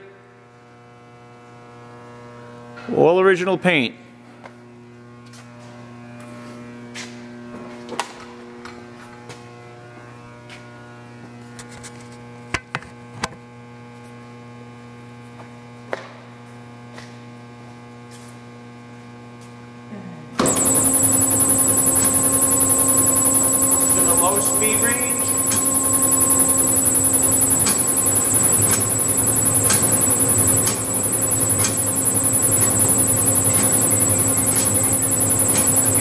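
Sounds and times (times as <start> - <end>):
bandsaw running with high whine: 20.4 - 36.0.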